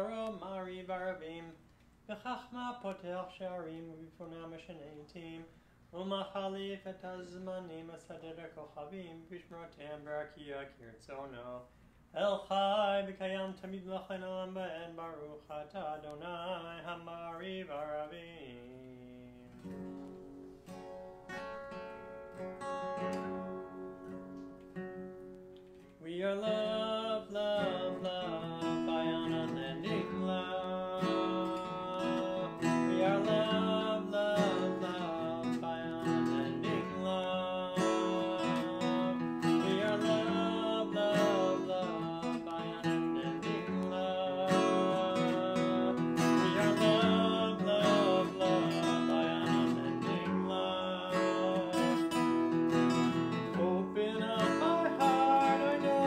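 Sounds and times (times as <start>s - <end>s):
acoustic guitar playing: 0.0s - 1.2s, 19.4s - 56.0s.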